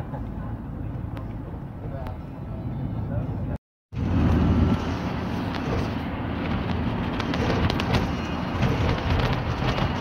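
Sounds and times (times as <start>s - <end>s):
motorbike road rumble: 0.0s - 10.0s
wind noise: 4.0s - 10.0s.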